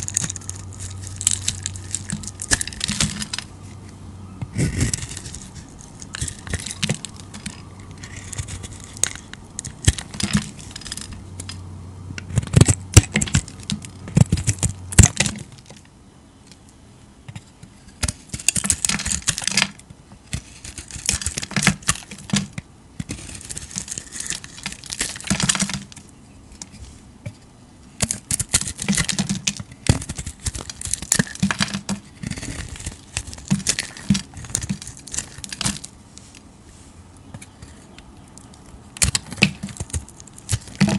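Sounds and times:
knife scraping soap: 4.5s - 11.1s, 20.3s - 22.3s, 23.1s - 25.8s, 28.1s - 35.8s.

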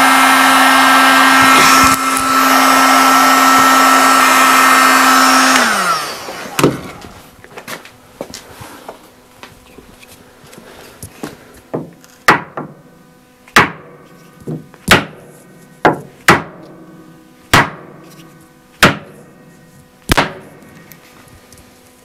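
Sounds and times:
wooden mallet striking wood: 11.8s - 12.8s, 13.5s - 15.2s, 15.8s - 16.7s, 17.5s - 18.0s, 18.8s - 19.2s, 20.1s - 20.5s.

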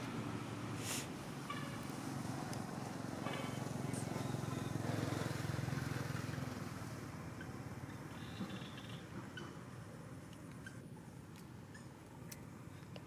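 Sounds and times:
vehicle engine hum: 0.0s - 13.0s.

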